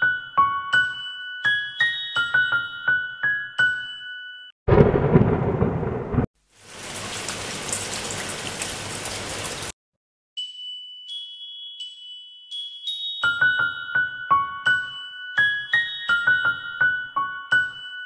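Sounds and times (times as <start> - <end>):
thunderclap: 4.7 - 6.3
steady rain: 5.4 - 9.7.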